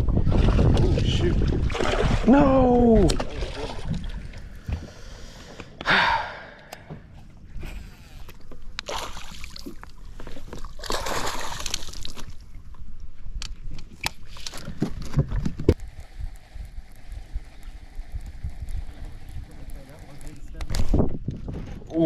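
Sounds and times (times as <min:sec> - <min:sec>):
fish splashing in water: 0:08.8 - 0:09.8, 0:10.6 - 0:12.3.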